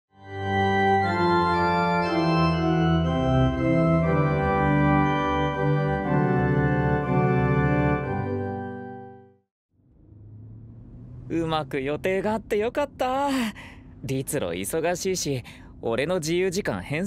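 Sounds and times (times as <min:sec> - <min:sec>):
organ playing slow chords: 0:00.2 - 0:09.4.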